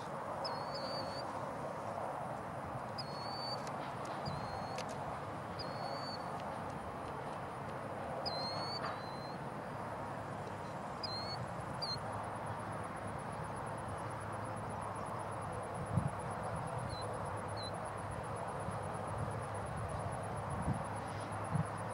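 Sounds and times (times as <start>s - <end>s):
bird whistled calls: 3.0s - 3.6s, 5.6s - 6.2s, 8.3s - 9.4s.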